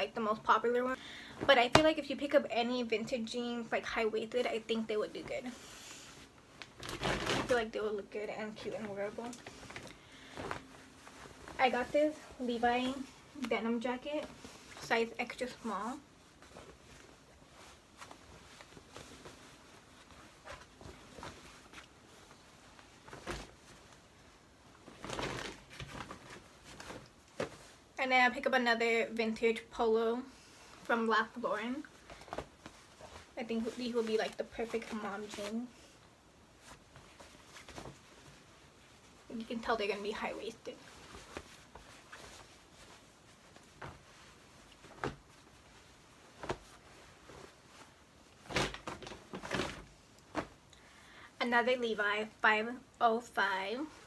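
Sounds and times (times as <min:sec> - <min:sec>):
denim jacket rustling: 0:00.0 - 0:52.4.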